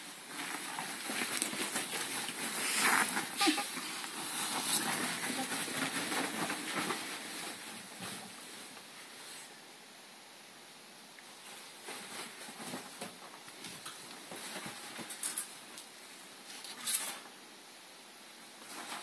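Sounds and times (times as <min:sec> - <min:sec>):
animals scrambling in fabric: 0:00.0 - 0:08.8.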